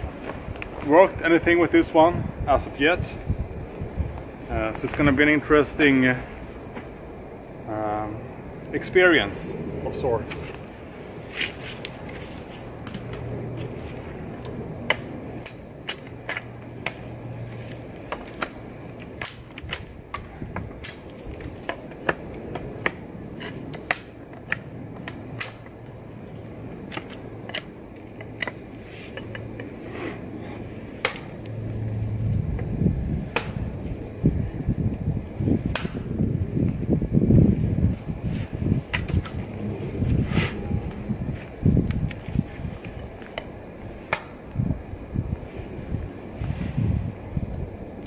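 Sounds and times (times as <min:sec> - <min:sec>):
low rumble: 0:31.3 - 0:42.2
knife chopping wood: 0:33.3 - 0:33.6.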